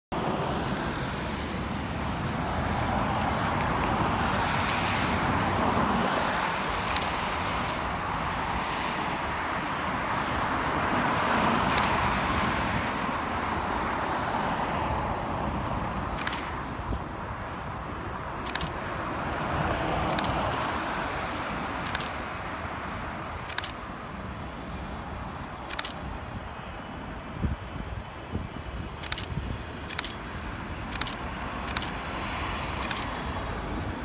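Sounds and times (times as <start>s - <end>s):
cars passing on freeway: 0.1s - 34.0s
sharp clicks: 6.7s - 7.2s, 11.6s - 12.0s, 16.1s - 16.5s, 18.4s - 18.8s, 20.0s - 20.4s, 21.8s - 22.2s, 23.4s - 23.8s, 24.9s - 26.8s, 29.0s - 33.6s.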